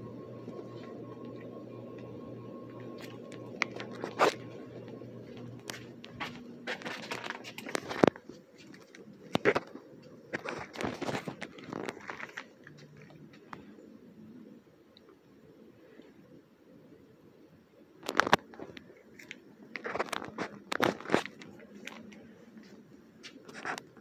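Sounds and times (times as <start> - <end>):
ceiling fan motor hum: 0.0 - 16.1
crackling and rustling: 0.0 - 16.3, 18.0 - 24.0.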